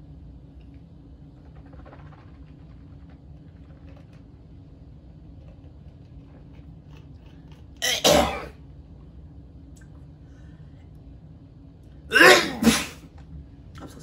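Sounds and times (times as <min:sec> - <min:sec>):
sputtering cough: 0:07.8 - 0:08.5, 0:12.1 - 0:13.0.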